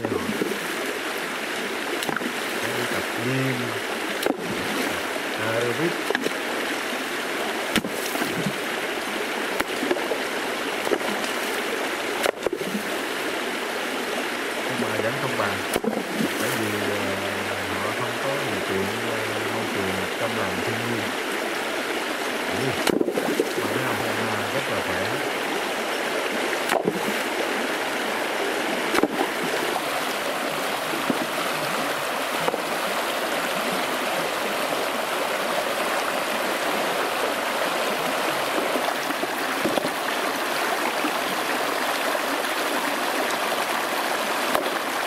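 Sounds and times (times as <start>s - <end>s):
river rushing over stones: 0.0s - 45.0s
stones splashing and knocking: 2.0s - 2.8s, 4.2s - 5.0s, 5.9s - 6.4s, 7.7s - 8.6s, 9.6s - 10.2s, 12.2s - 12.8s, 15.7s - 16.7s, 22.8s - 23.8s, 26.6s - 27.3s, 28.9s - 29.5s, 31.0s - 31.4s, 38.6s - 40.1s, 44.4s - 44.9s.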